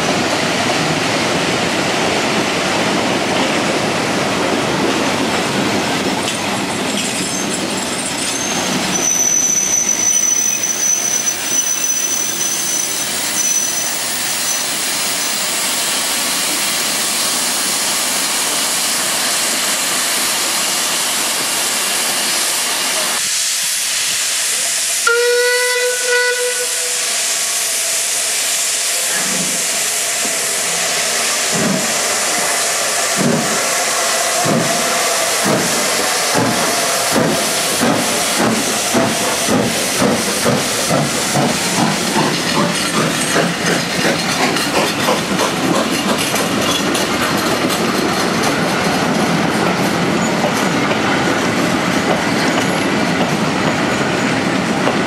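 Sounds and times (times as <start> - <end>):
steam locomotive hissing: 0.0 - 55.0
steam locomotive exhaust chuffs: 23.2 - 53.9
steam whistle: 25.0 - 28.2
train wheels clattering: 29.1 - 55.0.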